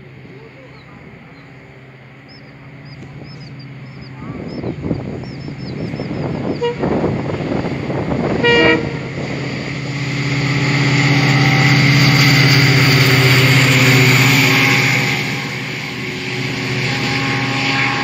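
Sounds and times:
diesel engine rumble: 0.0s - 18.0s
train horn blast: 6.3s - 18.0s.

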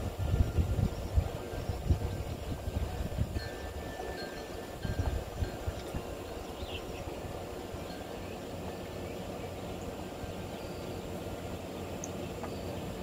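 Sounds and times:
faint bird chirps: 5.3s - 13.0s.

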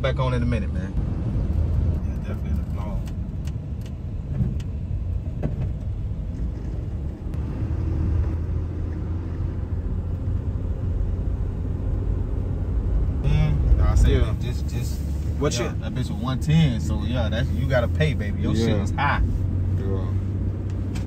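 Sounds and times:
vehicle engine and road noise: 0.0s - 21.0s.

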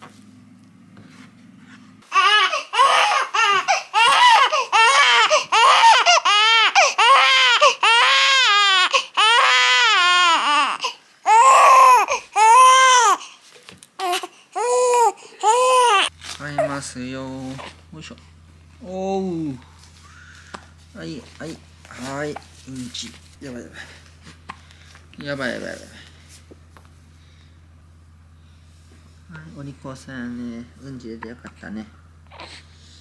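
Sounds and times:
faint low hum: 0.0s - 7.9s, 13.2s - 33.0s
baby crying: 2.1s - 13.3s, 14.0s - 16.8s, 32.2s - 32.7s.

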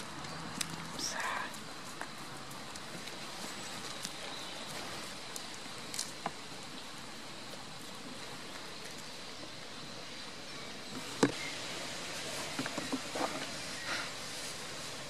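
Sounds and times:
outdoor background hiss: 0.0s - 15.0s.

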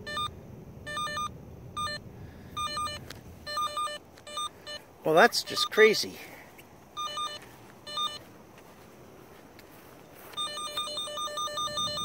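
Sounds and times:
electronic chirps: 0.0s - 0.3s, 0.9s - 2.0s, 2.6s - 5.9s, 7.0s - 8.3s, 10.3s - 12.0s
fast electronic beeps: 2.6s - 4.8s, 10.4s - 12.0s.

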